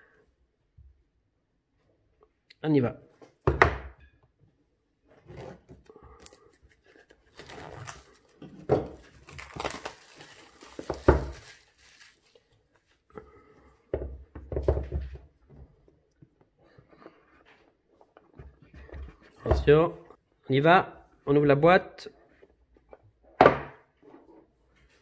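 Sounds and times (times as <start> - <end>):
plastic wrapping tearing and crinkling: 6.2 - 12.8.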